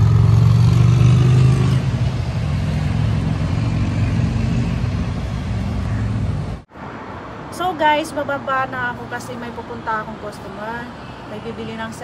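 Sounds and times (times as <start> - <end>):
vehicle engine: 0.0 - 6.7
city road traffic rumble: 0.0 - 12.0.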